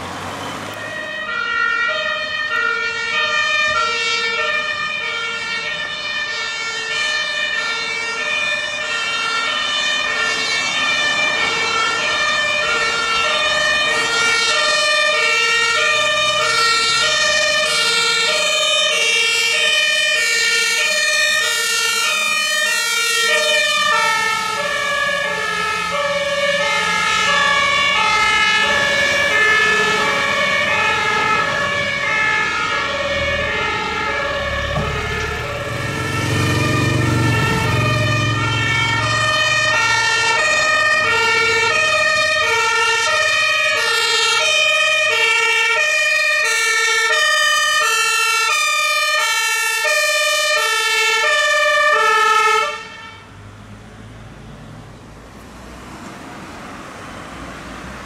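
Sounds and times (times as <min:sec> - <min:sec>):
two-tone emergency sirens: 0:00.0 - 0:58.0
low engine hum: 0:34.4 - 0:39.6.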